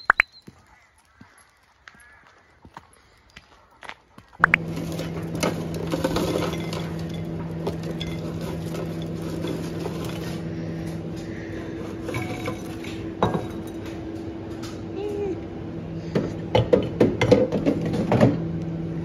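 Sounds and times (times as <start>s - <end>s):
steady low hum: 4.2s - 19.0s
potato wedges tumbling into bowls: 4.4s - 14.7s.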